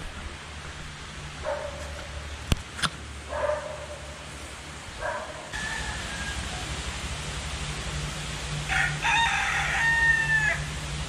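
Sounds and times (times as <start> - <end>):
dog barking: 1.4 - 2.1, 3.3 - 4.2, 5.0 - 5.6.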